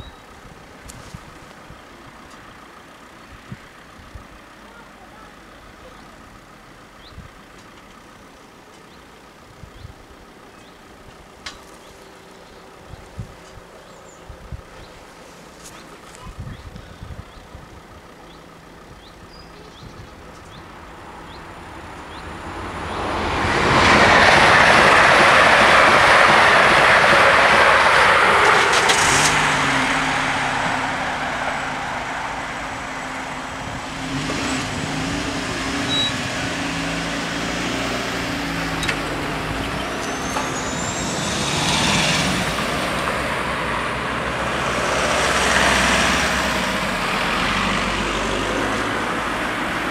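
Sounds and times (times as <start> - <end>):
cars driving over crossing: 0.0 - 49.9
crossing barriers humming: 0.0 - 49.9
train passing: 20.7 - 49.9.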